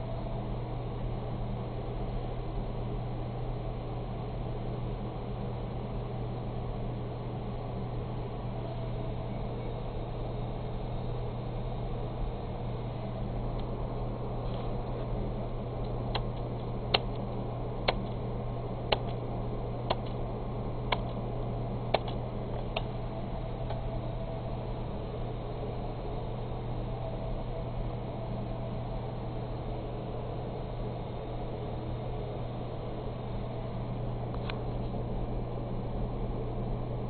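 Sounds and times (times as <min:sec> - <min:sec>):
computer equipment hum: 0:00.0 - 0:37.0
sharp clicks: 0:18.9 - 0:19.2, 0:19.8 - 0:20.2, 0:20.9 - 0:21.2, 0:21.9 - 0:22.9.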